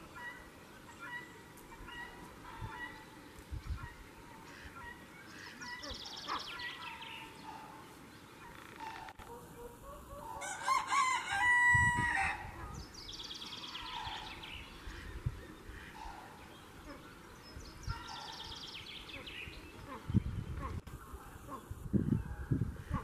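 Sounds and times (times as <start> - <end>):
small birds chirping: 0.0 - 10.3, 12.6 - 23.0
rooster crowing: 9.9 - 12.6.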